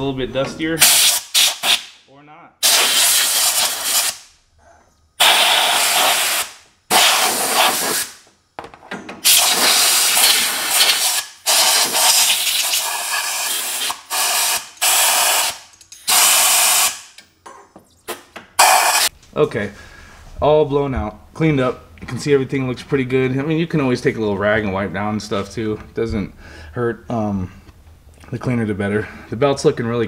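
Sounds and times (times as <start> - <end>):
compressed air blow gun hissing: 2.6 - 4.2, 5.2 - 8.2, 9.2 - 17.0.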